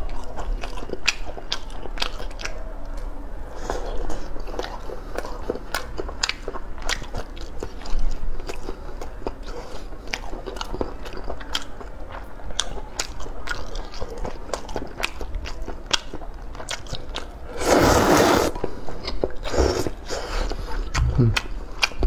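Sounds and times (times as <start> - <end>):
chewing with wet clicks: 0.0 - 17.5, 18.6 - 22.0
slurping noodles: 17.5 - 18.8, 19.4 - 20.6.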